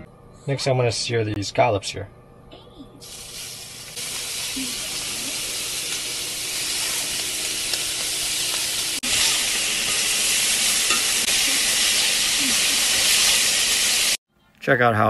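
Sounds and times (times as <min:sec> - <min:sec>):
scallops sizzling in skillet: 0:03.0 - 0:14.2.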